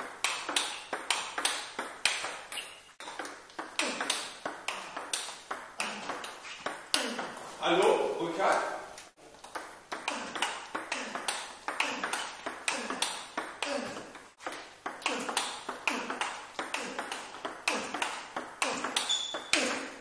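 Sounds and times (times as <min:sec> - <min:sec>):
table tennis ball clicks: 0:00.2 - 0:06.9
high squeak: 0:02.5 - 0:03.0, 0:19.0 - 0:19.6.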